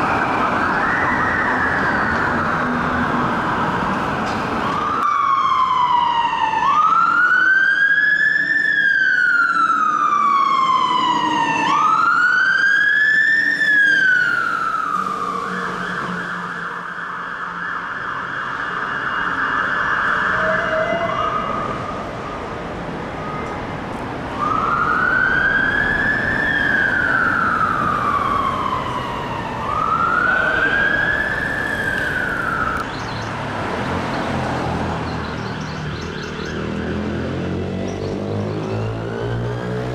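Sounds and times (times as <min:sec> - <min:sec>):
fire engine siren wailing: 0:00.0 - 0:22.4, 0:23.0 - 0:32.9, 0:36.0 - 0:39.9
steady siren horn tone: 0:08.3 - 0:21.9, 0:24.5 - 0:32.8.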